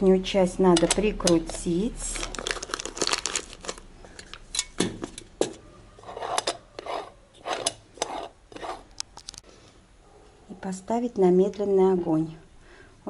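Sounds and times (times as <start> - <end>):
metal scraping and clinking: 3.6 - 9.4.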